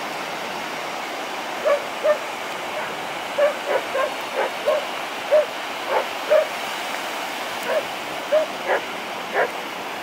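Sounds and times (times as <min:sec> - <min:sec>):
surf hissing: 0:00.0 - 0:10.0
wind: 0:00.0 - 0:10.0
dog barking: 0:01.6 - 0:02.2, 0:02.8 - 0:06.5, 0:07.6 - 0:09.6.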